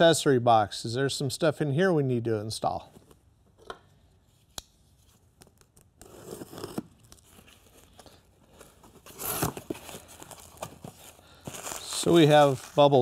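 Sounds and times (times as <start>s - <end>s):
cardboard rustling and tearing: 6.0s - 8.0s, 8.6s - 13.0s.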